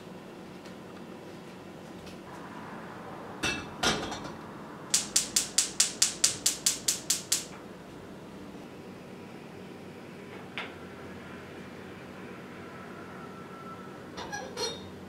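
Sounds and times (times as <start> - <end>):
gas hob igniter clicking: 4.9 - 7.6.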